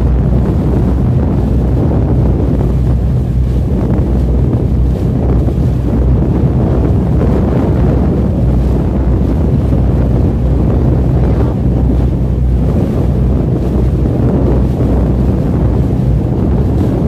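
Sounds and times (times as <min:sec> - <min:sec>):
low engine rumble: 0:00.0 - 0:17.0
water washing: 0:00.0 - 0:17.0
wind buffeting microphone: 0:00.0 - 0:17.0.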